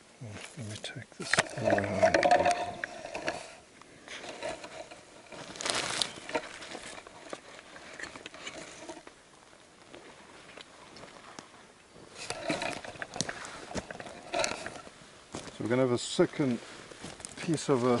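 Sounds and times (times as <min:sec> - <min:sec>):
clothing and gear rustling: 0:01.5 - 0:18.0
footsteps on forest floor: 0:04.2 - 0:18.0.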